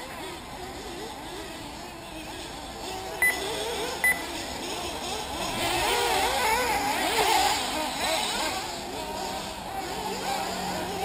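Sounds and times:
rc car engines revving: 0.0s - 11.0s.

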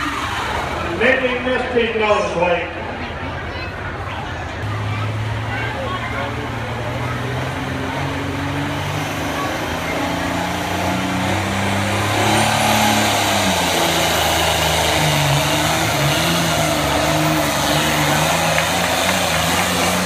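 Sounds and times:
tractor engine revving hard: 4.6s - 20.0s.

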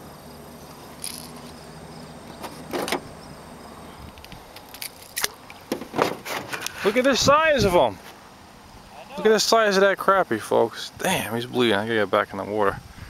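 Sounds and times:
handling knocks and rustles: 2.2s - 3.1s, 4.0s - 7.0s.

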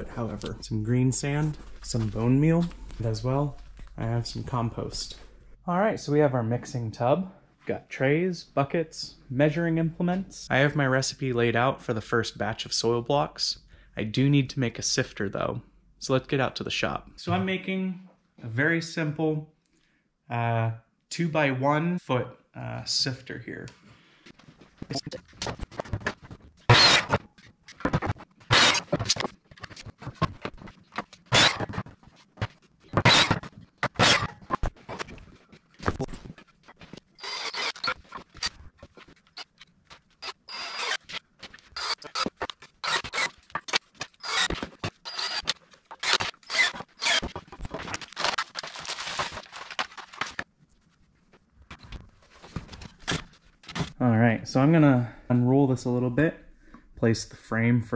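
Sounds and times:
cordless drill driving screws: 26.7s - 27.2s, 28.5s - 28.9s, 31.3s - 31.8s, 33.0s - 34.4s, 37.2s - 38.1s, 40.2s - 47.3s.

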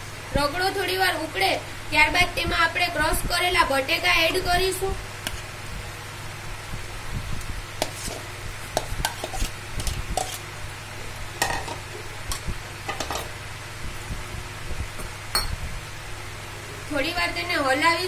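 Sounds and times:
spoon clinking and scraping bowl: 8.8s - 10.4s.

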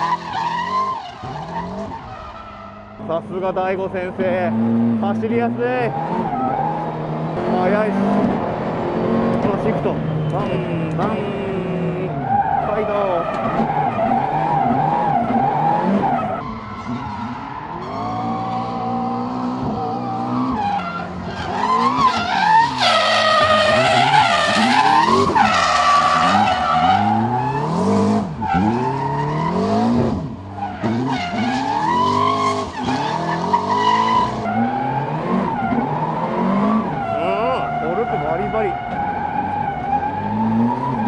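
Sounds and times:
car engine revving: 0.0s - 41.0s
tyres squealing: 9.4s - 29.8s.

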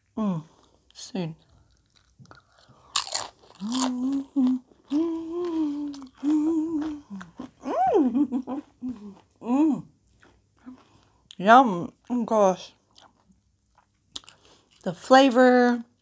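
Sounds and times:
crunch of biting a chip: 1.6s - 4.1s
woman humming while eating: 3.6s - 9.9s.

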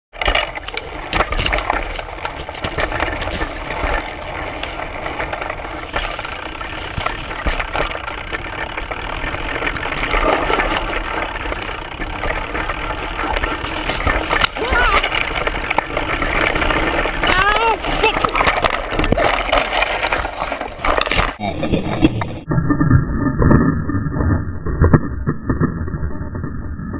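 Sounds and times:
bike knocks and rattles: 0.1s - 21.4s
bike tyre rumbling over dirt trail: 0.1s - 21.4s
grass swishing against wheel: 0.6s - 21.2s.

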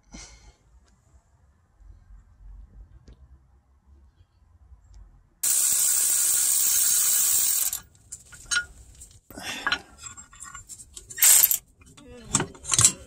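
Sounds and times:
power ratchet whirring: 5.4s - 7.8s, 11.2s - 11.6s.

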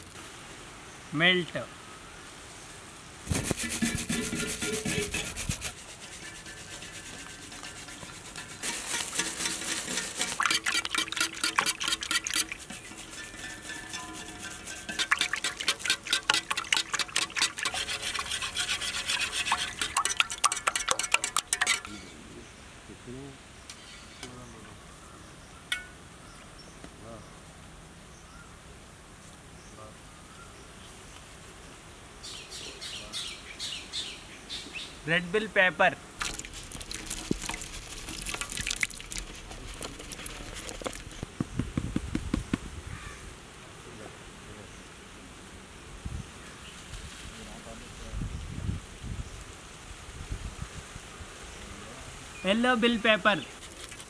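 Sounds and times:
whisk beating eggs in metal pot: 3.3s - 21.9s, 36.2s - 41.2s, 53.6s - 54.0s
pepper pieces splashing into egg: 36.2s - 41.2s.

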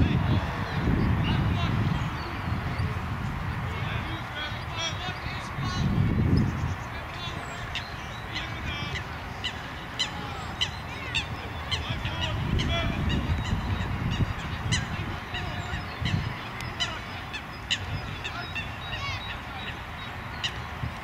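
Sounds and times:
geese honking: 7.2s - 20.7s.

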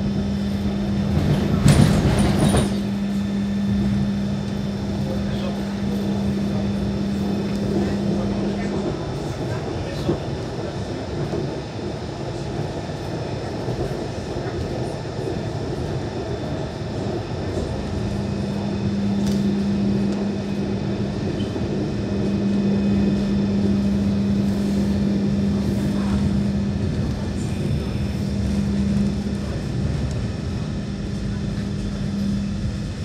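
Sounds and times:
constant low hum: 0.0s - 33.0s
tram running gear rumble: 0.0s - 33.0s.

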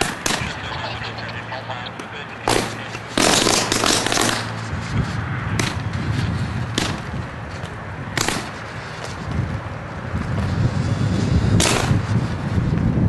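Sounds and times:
power line crackling buzz: 0.0s - 12.8s
sharp electrical cracks: 2.5s - 4.6s, 8.2s - 8.6s, 10.9s - 12.1s.

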